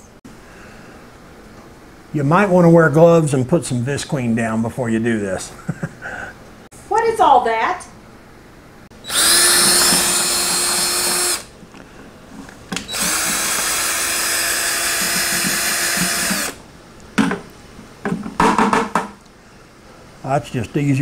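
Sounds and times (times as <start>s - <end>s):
cordless drill motor whining: 9.0s - 11.5s, 12.9s - 16.6s.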